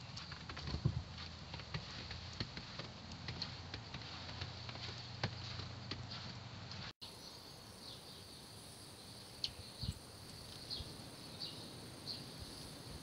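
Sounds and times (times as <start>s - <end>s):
wind and rain hiss: 7.1s - 13.0s.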